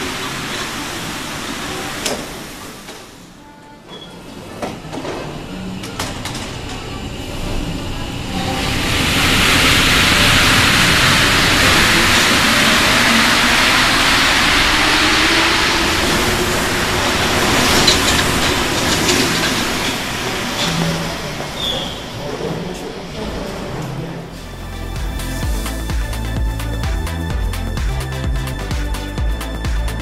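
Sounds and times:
train tyres rushing hiss: 0:00.0 - 0:03.4, 0:04.2 - 0:22.4.

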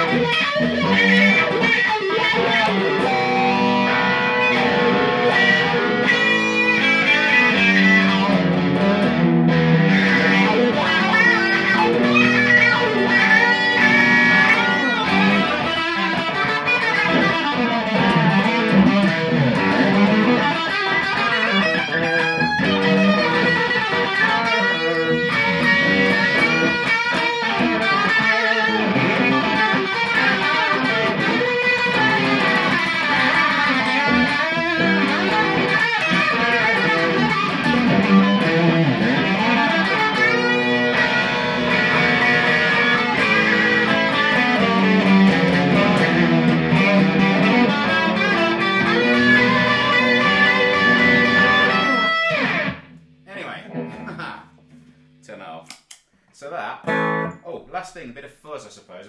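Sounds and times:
electric guitar riffs: 0:00.0 - 0:55.7, 0:56.4 - 0:58.2.

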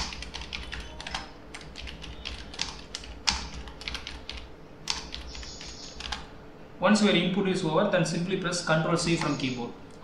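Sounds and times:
typing on computer keyboard: 0:00.0 - 0:06.3.

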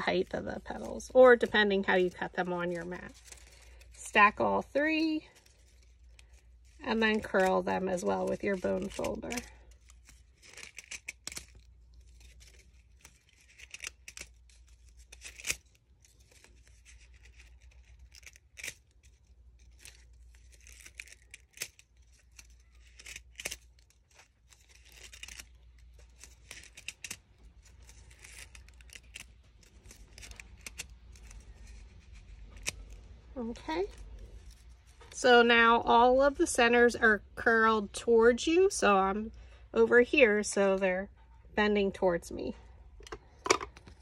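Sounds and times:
cardstock strips rustling: 0:00.0 - 0:35.2
sharp paper clicks: 0:05.4 - 0:33.2.

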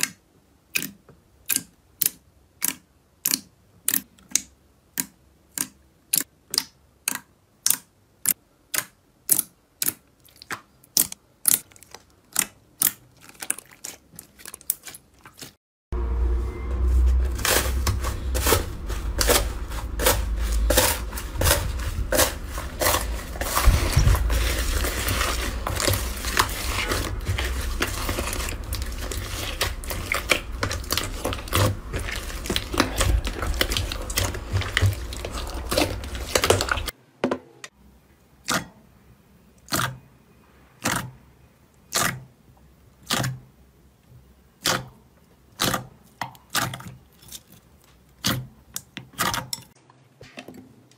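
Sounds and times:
hands kneading crunchy slime: 0:08.7 - 0:15.6, 0:16.8 - 0:36.9.

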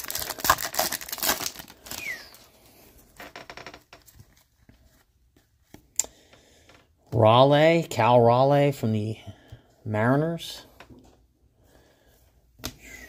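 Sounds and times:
foil wrapper crinkling: 0:00.0 - 0:02.5.

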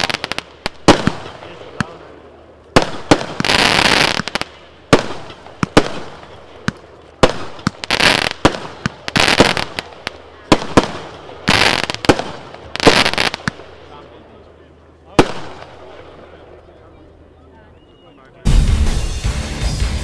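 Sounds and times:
firework bangs: 0:00.0 - 0:13.8, 0:15.1 - 0:16.3
dense firework crackling: 0:00.0 - 0:14.3.

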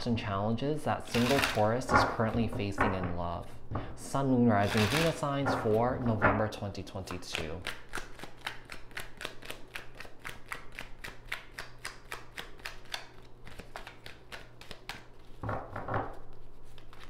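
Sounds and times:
cards being shuffled: 0:01.0 - 0:01.9, 0:04.6 - 0:05.8, 0:07.0 - 0:15.5, 0:16.1 - 0:17.0.

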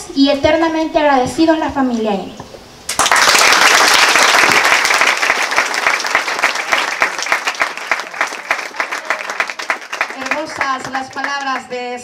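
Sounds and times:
audience applauding: 0:02.9 - 0:11.7.

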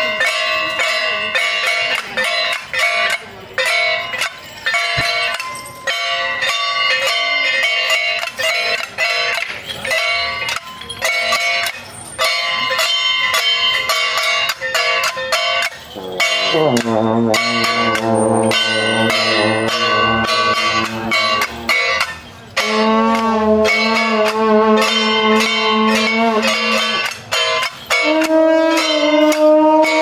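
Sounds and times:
clanging metal percussion: 0:00.0 - 0:30.0
long brass horns blowing: 0:15.9 - 0:26.9, 0:27.9 - 0:30.0.

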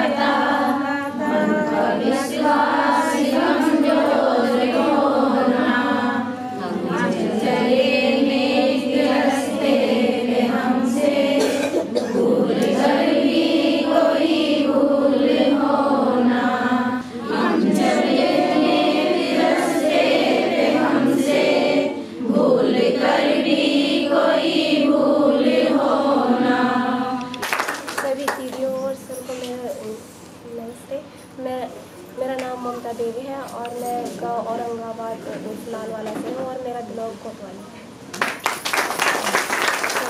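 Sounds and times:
women singing in unison: 0:00.0 - 0:27.5.

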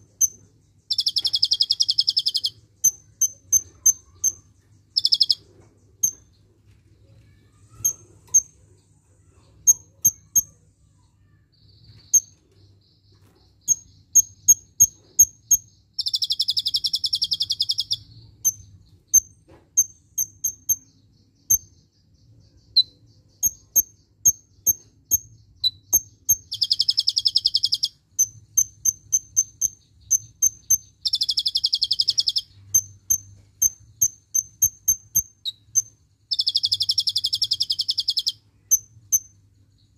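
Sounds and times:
bird trilling: 0:00.0 - 0:06.3, 0:13.2 - 0:21.8, 0:22.5 - 0:39.3
bird chirping: 0:00.0 - 0:39.9.

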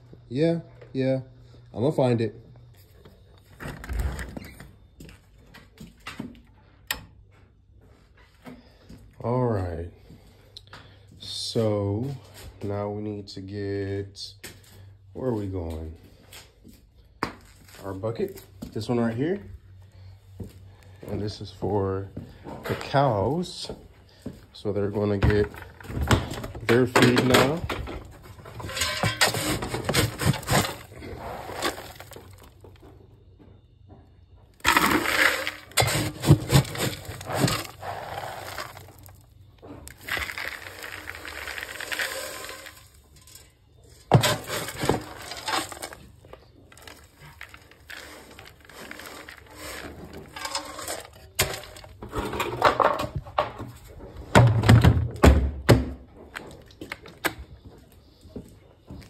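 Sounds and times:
feed pellets rattling into buckets: 0:24.8 - 0:32.8, 0:34.6 - 0:53.2
plastic scoop scraping pellets: 0:28.6 - 0:32.5, 0:34.6 - 0:39.3, 0:39.9 - 0:43.5, 0:44.1 - 0:52.3.

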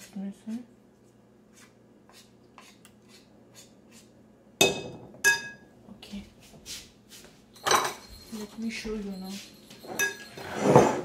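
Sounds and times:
spoon clinking against bowl: 0:07.6 - 0:10.6
metal spoon scraping glass bowl: 0:07.7 - 0:11.0.

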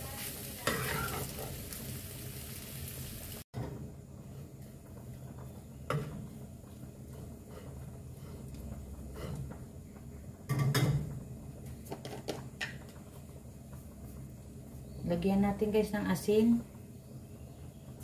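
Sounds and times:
spatula stirring rice in pan: 0:00.2 - 0:01.8
spatula scraping pan: 0:00.6 - 0:01.6.

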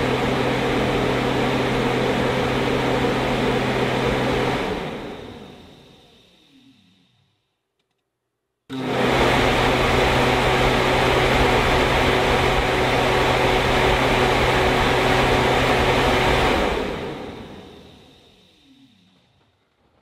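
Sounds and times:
electric fans rushing air: 0:00.0 - 0:06.5, 0:08.7 - 0:18.4
fan motor hum: 0:00.0 - 0:07.2, 0:08.7 - 0:18.6.

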